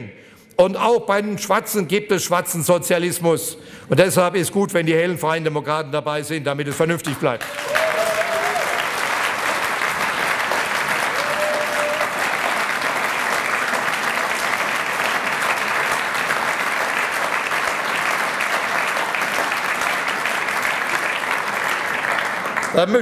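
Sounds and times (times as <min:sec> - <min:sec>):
audience applauding: 0:07.1 - 0:23.0.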